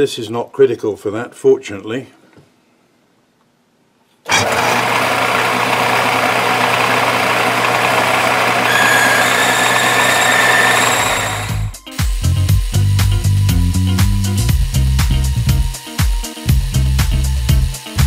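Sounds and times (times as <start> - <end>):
lathe whine and cutting noise: 4.3 - 11.8
high steady squeal: 8.0 - 11.8.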